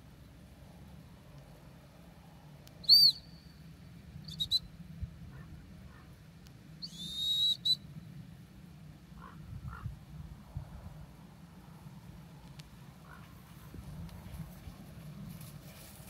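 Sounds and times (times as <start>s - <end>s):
dog whistle blasts: 2.8s - 3.3s, 6.8s - 7.8s.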